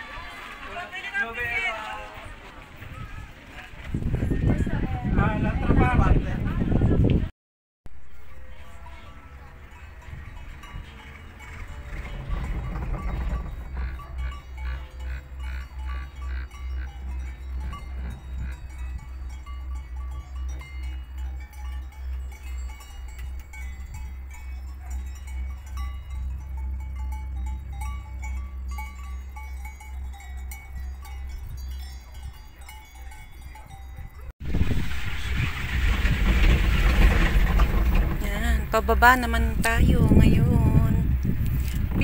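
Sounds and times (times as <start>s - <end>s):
sled wheels thumping on track: 0.0s - 6.0s, 7.9s - 42.0s
bell-like clinking tones: 8.1s - 34.3s.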